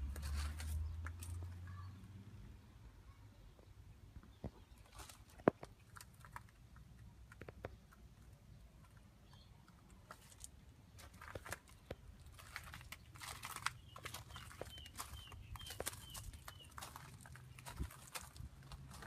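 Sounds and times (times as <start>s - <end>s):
footsteps on gravel: 0.0s - 1.6s, 4.6s - 6.5s, 10.0s - 19.0s.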